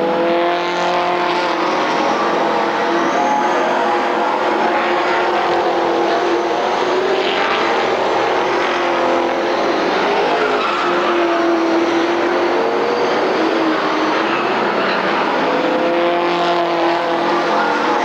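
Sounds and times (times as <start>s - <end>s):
race car engines droning: 0.0s - 18.0s.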